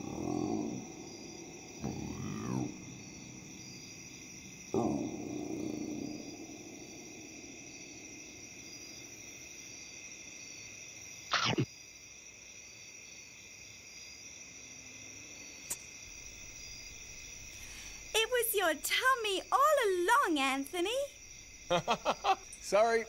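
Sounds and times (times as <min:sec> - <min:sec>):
low rumbling tummy growl: 0:00.0 - 0:07.8
crickets chirping: 0:00.0 - 0:23.0.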